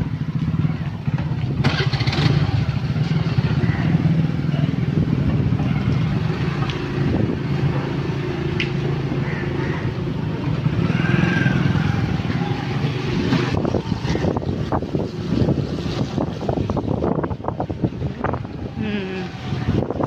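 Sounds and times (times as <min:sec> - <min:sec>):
motorcycle engine puttering: 0:00.0 - 0:15.4.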